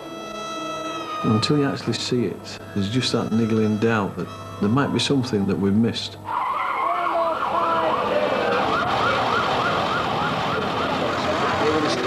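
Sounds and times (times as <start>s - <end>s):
street noise: 0.0s - 12.0s
siren wailing and yelping: 6.2s - 11.6s.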